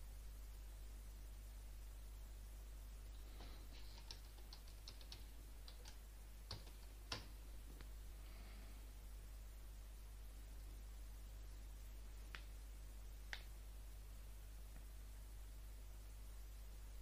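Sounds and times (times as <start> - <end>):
computer keyboard clicking: 3.8 - 7.3.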